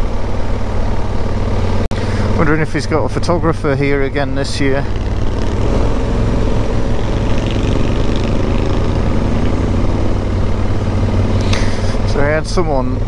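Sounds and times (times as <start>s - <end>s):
motorcycle engine under load: 0.0s - 13.0s
wind and road noise: 0.0s - 13.0s.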